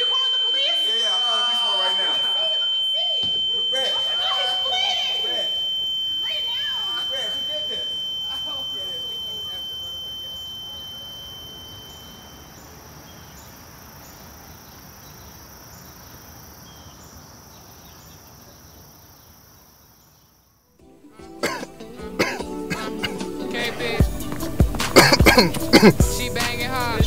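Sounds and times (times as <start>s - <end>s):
thin high ringing tone: 0.0s - 16.9s
steady hiss: 0.0s - 20.3s, 22.8s - 27.0s
film music: 20.8s - 27.0s.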